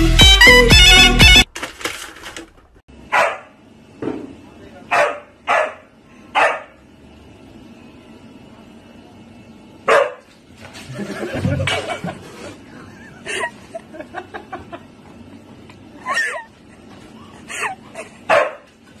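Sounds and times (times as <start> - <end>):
dog barking: 3.1 - 3.6, 4.9 - 6.8, 9.9 - 10.3, 18.3 - 18.7.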